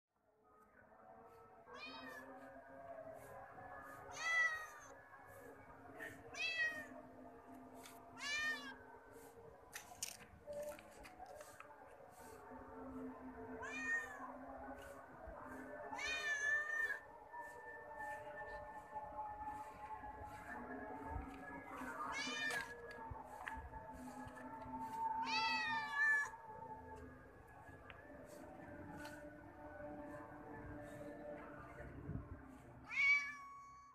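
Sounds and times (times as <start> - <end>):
cat meowing: 32.9 - 33.9.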